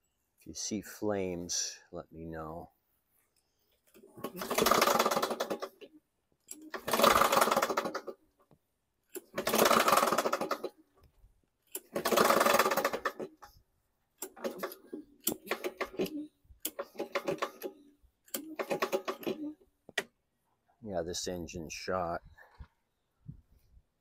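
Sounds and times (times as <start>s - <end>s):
recoil cord pulls: 3.8s - 13.6s, 14.2s - 20.1s
mower engine cranking: 3.9s - 8.4s, 9.1s - 11.0s, 11.6s - 13.6s, 14.2s - 19.6s.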